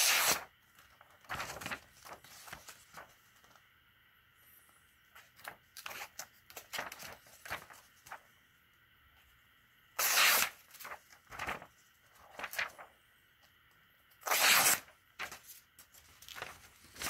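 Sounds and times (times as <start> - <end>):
knife slicing paper: 0.0 - 0.5, 10.0 - 11.7, 14.2 - 15.5.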